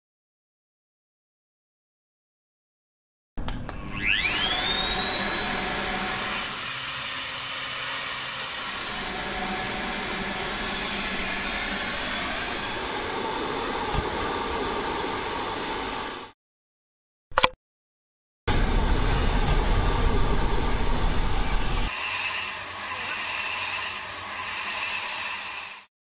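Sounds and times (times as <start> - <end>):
vacuum cleaner motor whine: 3.8 - 16.4, 18.5 - 25.9.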